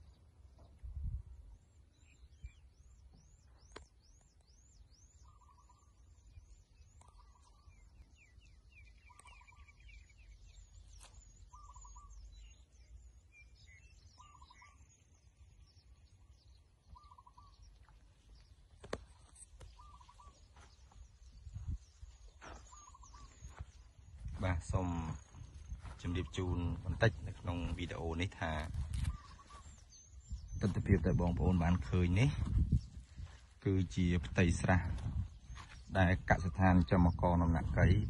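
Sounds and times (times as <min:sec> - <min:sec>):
short lower bird call: 0:05.2 - 0:06.0, 0:11.5 - 0:12.6, 0:13.6 - 0:15.0, 0:16.9 - 0:17.7, 0:19.4 - 0:20.8, 0:22.4 - 0:23.6, 0:29.0 - 0:29.9.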